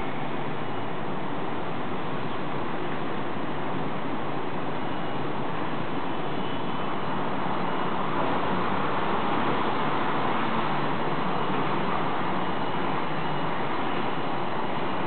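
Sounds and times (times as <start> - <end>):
city traffic noise: 0.0 - 15.0.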